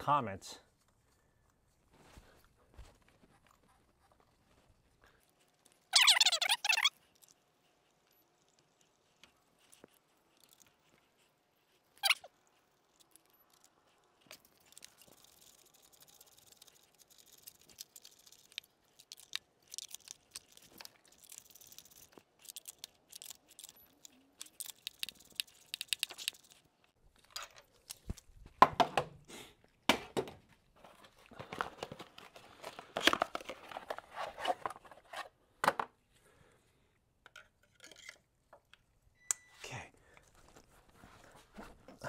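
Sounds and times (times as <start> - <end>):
plastic crinkling and tearing: 14.2 - 26.7.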